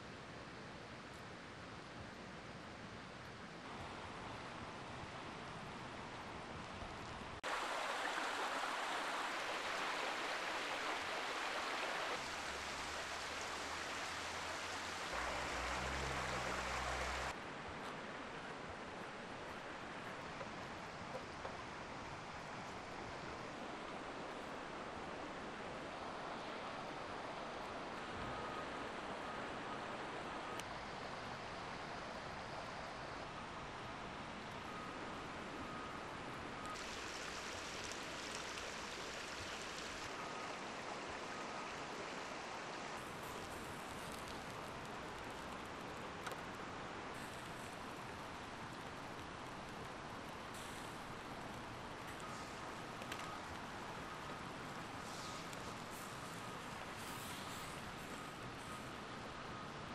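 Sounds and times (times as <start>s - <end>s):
river water rushing over stones: 3.6s - 59.9s
deep rumble of water: 6.2s - 17.4s
wood fire crackling: 43.0s - 58.9s.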